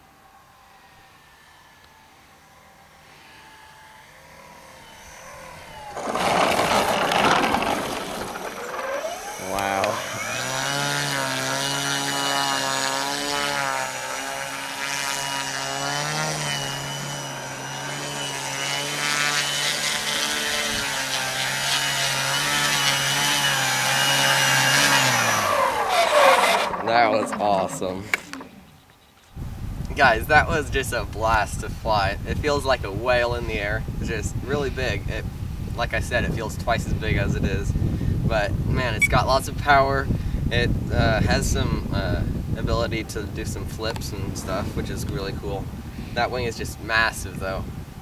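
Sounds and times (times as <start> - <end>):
model plane rolling on landing: 0.0 - 29.3
electric motor and propeller whine: 0.0 - 48.0.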